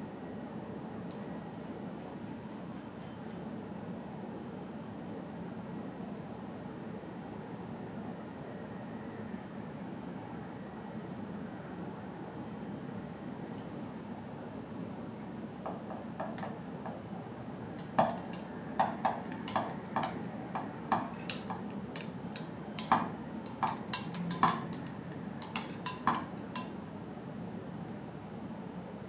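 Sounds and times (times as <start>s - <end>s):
spoon clinking against glass: 17.8s - 26.8s.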